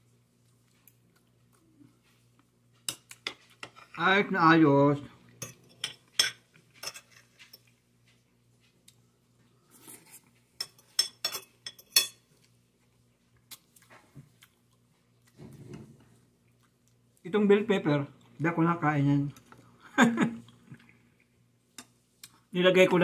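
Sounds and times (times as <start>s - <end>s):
cutlery clinking on dishes: 5.4s - 7.8s, 10.6s - 12.3s.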